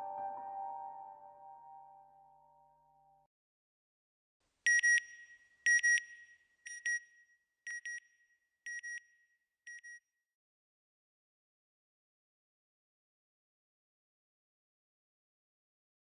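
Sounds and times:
soft background music: 0:00.0 - 0:03.3.

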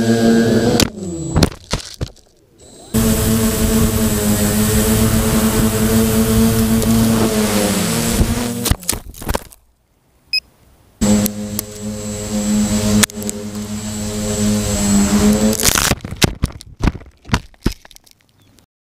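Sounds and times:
drone motors whining: 0:00.0 - 0:01.6, 0:02.6 - 0:08.9, 0:11.0 - 0:16.0.

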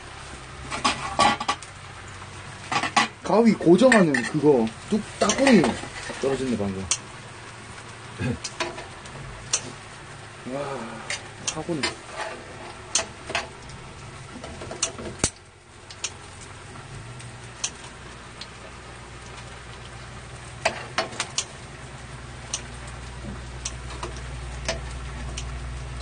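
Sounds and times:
steady low hum: 0:00.0 - 0:26.0
cooking utensils clicking and clinking: 0:02.6 - 0:07.0, 0:08.4 - 0:09.8, 0:11.0 - 0:16.5, 0:20.6 - 0:21.6, 0:23.6 - 0:26.0.

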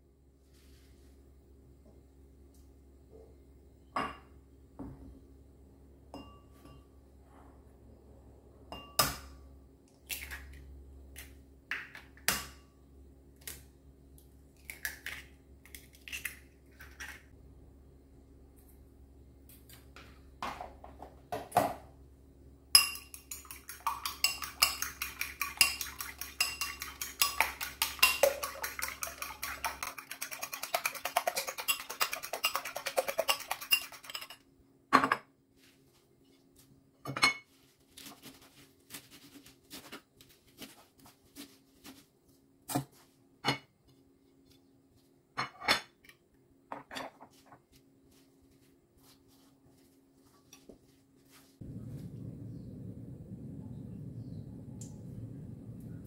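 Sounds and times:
eggs beaten with metal utensil: 0:22.8 - 0:34.4.

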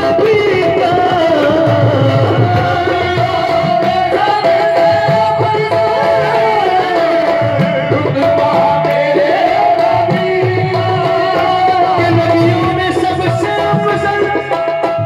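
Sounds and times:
hand drum playing: 0:00.0 - 0:15.0
harmonium: 0:00.0 - 0:15.0
man singing: 0:00.0 - 0:15.0.

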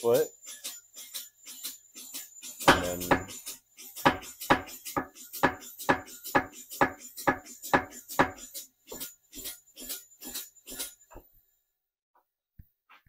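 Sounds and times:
power hammer metallic strikes: 0:01.1 - 0:10.9.

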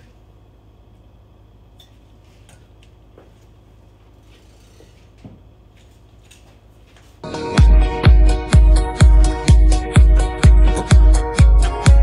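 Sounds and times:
low steady hum: 0:00.0 - 0:12.0
electronic dance music: 0:07.2 - 0:12.0.

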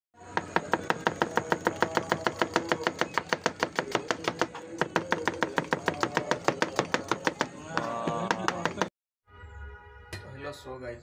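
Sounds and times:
knife slicing onion on cutting board: 0:00.4 - 0:08.9.

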